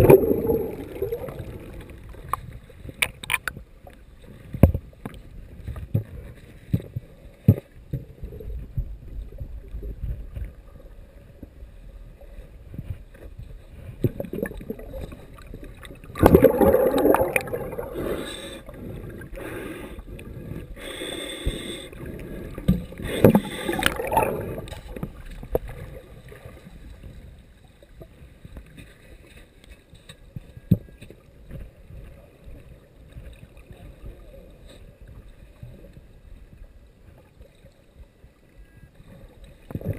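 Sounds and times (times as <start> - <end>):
water rushing underwater: 0.0 - 28.6
muffled underwater rumble: 0.0 - 39.9.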